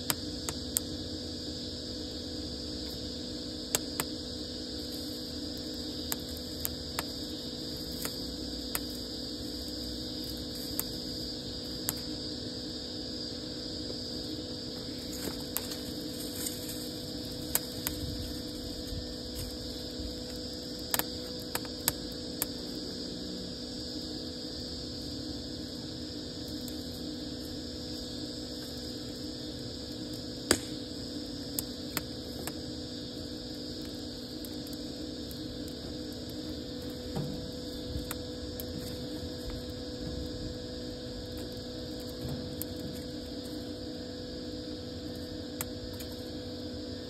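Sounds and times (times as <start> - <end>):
steady background hum: 0.0 - 47.0
wood fire crackling: 2.5 - 12.9, 13.8 - 44.0
sharp pops: 30.5 - 30.8.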